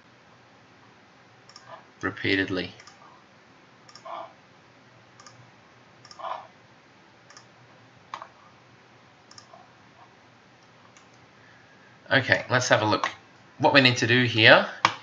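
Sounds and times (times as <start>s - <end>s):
faint room hiss: 0.0s - 15.0s
computer mouse clicking: 1.5s - 1.8s, 2.8s - 3.1s, 3.9s - 4.2s, 5.2s - 5.4s, 6.0s - 6.5s, 7.3s - 7.5s, 9.3s - 9.6s, 10.6s - 11.2s.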